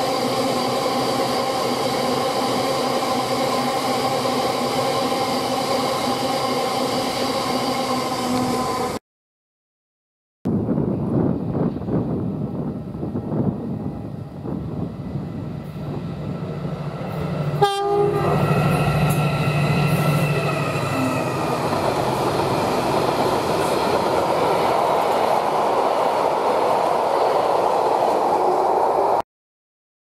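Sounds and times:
train horn blast: 17.6s - 18.4s.

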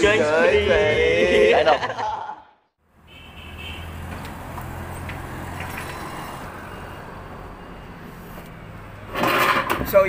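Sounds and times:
vehicle engine humming: 2.8s - 10.0s.

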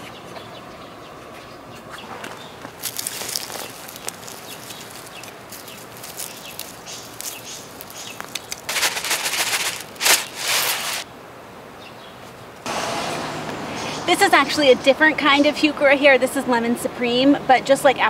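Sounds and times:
trowel scraping in mulch and soil: 2.7s - 11.0s
granules rattling from plastic jug: 2.8s - 11.0s.

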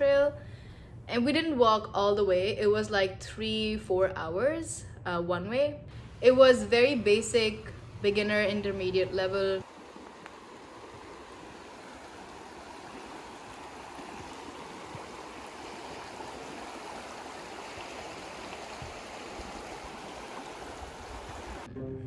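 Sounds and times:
river water rushing: 7.8s - 21.7s.

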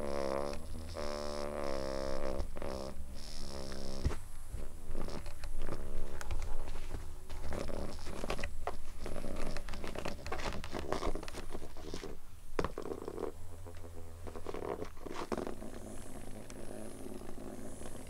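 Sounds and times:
cats rustling and scratching toy: 3.7s - 13.2s, 14.2s - 18.0s.

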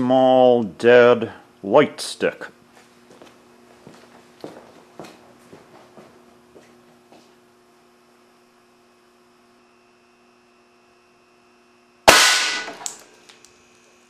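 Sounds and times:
electrical hum: 0.0s - 14.0s
air cannon blast: 12.1s - 12.9s.

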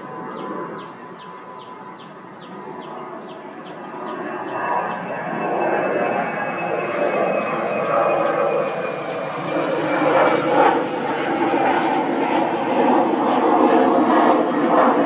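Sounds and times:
high whine: 4.2s - 15.0s
approaching engine: 4.9s - 14.6s.

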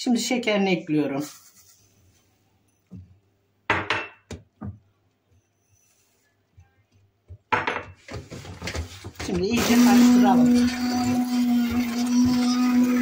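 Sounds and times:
glassware knocking and clinking: 3.7s - 4.4s, 7.5s - 8.1s.

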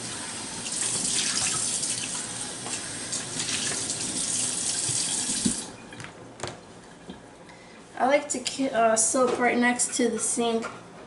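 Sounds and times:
faucet water running into cup: 0.0s - 2.3s.

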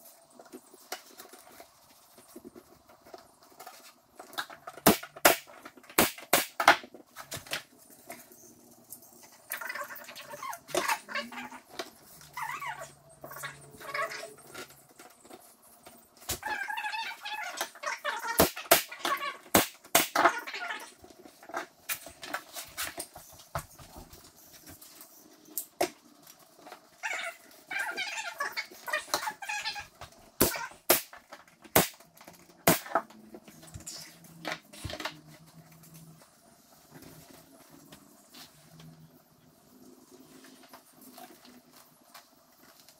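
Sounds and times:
pneumatic nailer firing: 6.0s - 6.8s, 19.5s - 20.2s, 31.7s - 32.0s, 32.6s - 32.9s
squeaks and clicks: 8.0s - 19.5s, 26.6s - 30.8s.

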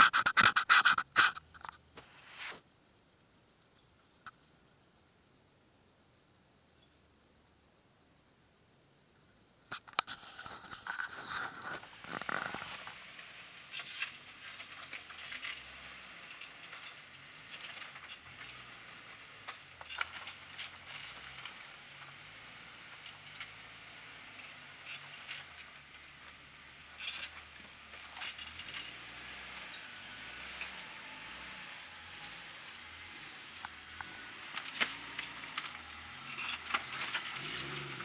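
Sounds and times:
rocks knocking and scraping: 9.7s - 13.2s, 17.5s - 21.6s
faint low engine: 10.3s - 38.0s.

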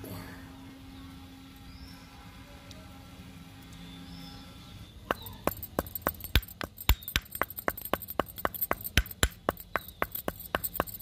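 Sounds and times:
stone pestle pounding in mortar: 5.1s - 11.0s.

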